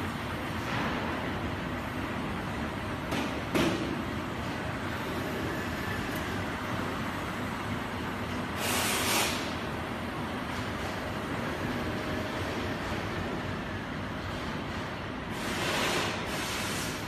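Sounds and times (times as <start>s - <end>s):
burst of hiss: 8.6s - 9.5s, 15.4s - 17.0s.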